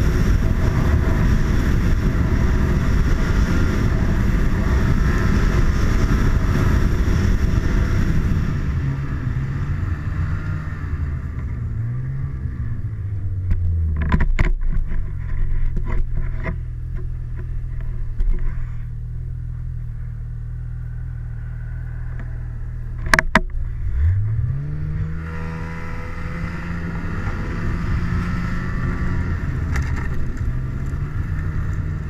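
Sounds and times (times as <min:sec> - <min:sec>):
snowmobile engine running: 0:00.0 - 0:32.0
sharp knocks: 0:23.0 - 0:23.6.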